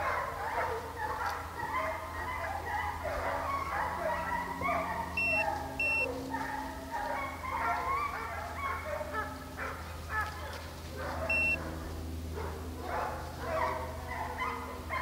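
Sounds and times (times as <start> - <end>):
hounds baying: 0.0 - 15.0
short electronic beep: 5.2 - 6.1, 11.3 - 11.6.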